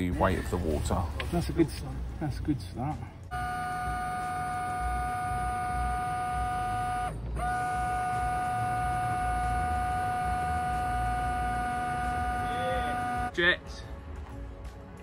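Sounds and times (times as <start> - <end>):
washer pump whining: 3.3 - 13.3.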